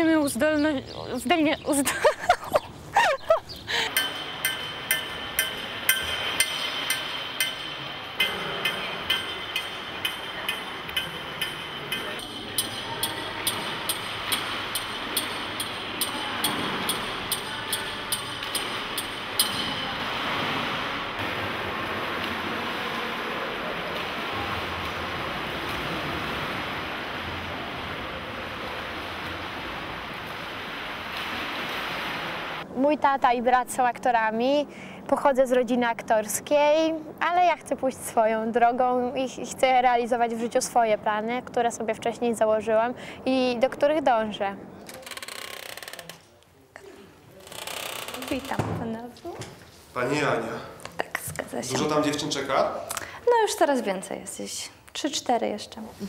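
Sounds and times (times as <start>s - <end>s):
steady metallic tapping: 3.8s - 20.1s
water splashing in a pool: 3.8s - 32.7s.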